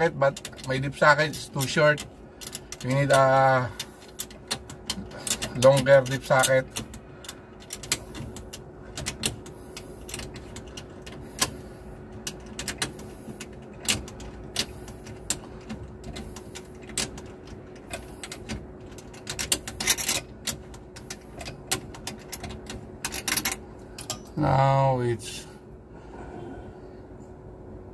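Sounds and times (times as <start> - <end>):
faint steady hum: 0.0 - 27.9
ratchet clicking: 12.2 - 24.3.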